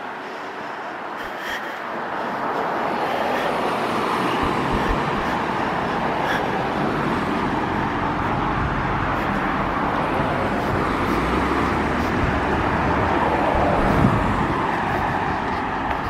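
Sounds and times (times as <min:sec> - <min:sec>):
road traffic rushing: 0:00.0 - 0:16.0.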